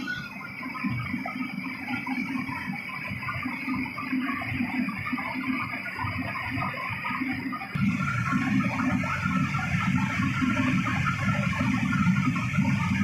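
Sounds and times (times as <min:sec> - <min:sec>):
gas burner roaring: 0:07.7 - 0:13.0.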